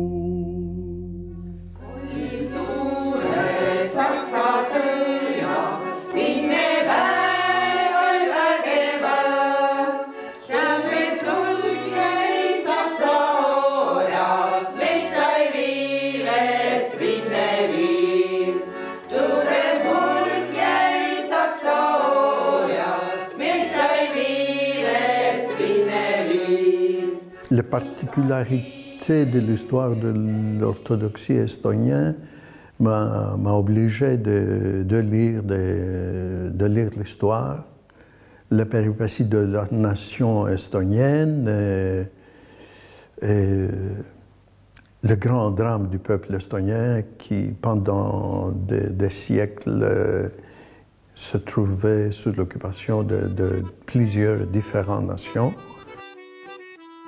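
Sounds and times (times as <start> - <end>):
a cappella choir singing: 0.0 - 31.9.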